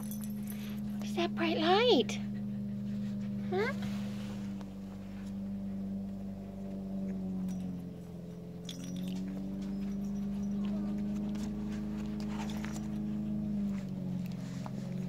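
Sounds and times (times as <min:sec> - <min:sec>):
steady mechanical hum: 0:00.0 - 0:15.0
puppies scuffling on bedding: 0:09.1 - 0:15.0.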